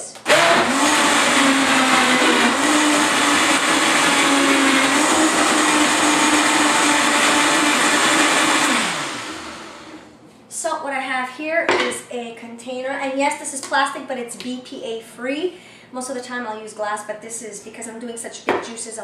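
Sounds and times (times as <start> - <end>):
blender motor running: 0.2 - 10.1.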